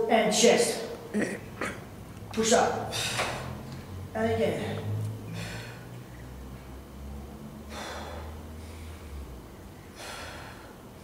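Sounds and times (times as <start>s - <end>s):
man breathing forcefully: 2.8s - 3.6s, 5.2s - 5.9s, 7.5s - 11.0s.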